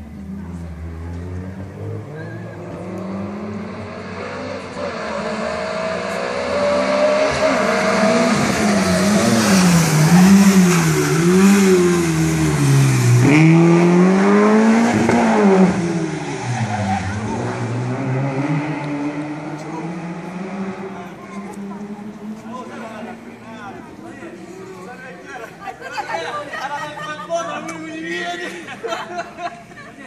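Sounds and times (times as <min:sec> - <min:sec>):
rally car engine revving: 0:00.2 - 0:23.4.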